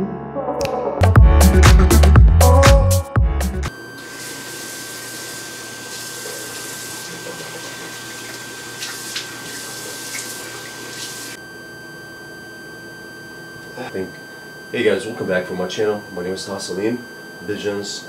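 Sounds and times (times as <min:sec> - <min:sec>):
water splashes: 0:04.0 - 0:11.4.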